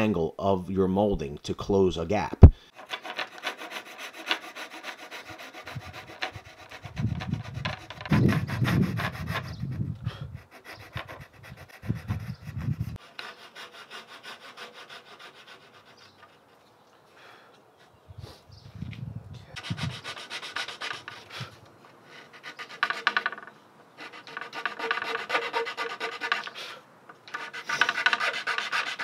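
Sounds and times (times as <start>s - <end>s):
hand saw cutting wood: 2.7s - 9.6s, 10.3s - 16.4s, 19.6s - 29.0s.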